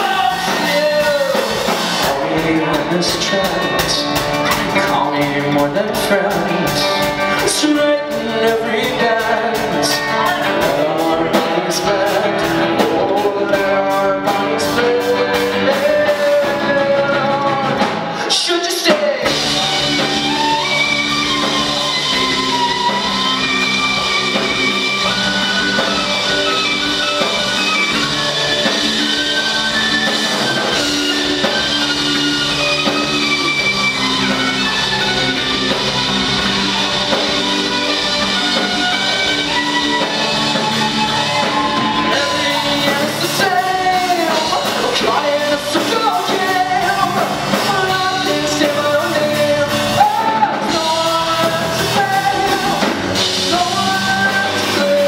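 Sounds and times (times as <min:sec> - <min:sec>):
live rock band playing: 0:00.0 - 0:55.0
violin melody: 0:19.4 - 0:49.3.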